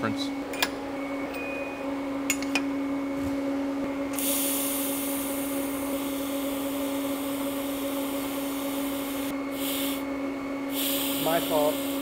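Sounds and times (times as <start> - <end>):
low electrical hum: 0.0 - 12.0
welding arc hissing: 4.1 - 10.1, 10.7 - 12.0.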